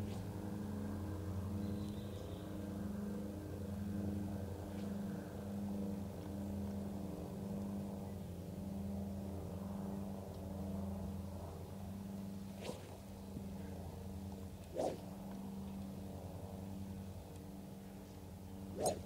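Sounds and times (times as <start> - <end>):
motor running steadily: 0.0 - 19.0.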